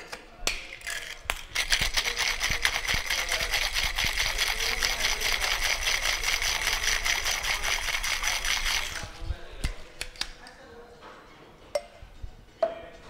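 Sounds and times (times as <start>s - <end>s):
ice rattling in cocktail shaker: 0.7s - 9.2s.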